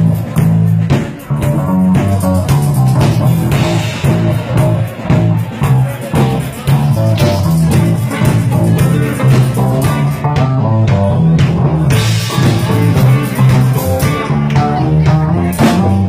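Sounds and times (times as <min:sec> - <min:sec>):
drum kit: 0:00.0 - 0:16.0
electric guitar: 0:00.0 - 0:16.0
repeating low bass line: 0:00.0 - 0:16.0.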